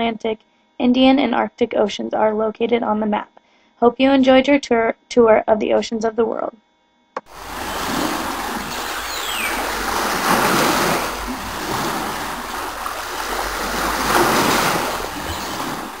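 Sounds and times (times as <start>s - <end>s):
ocean waves washing in: 7.2s - 16.0s.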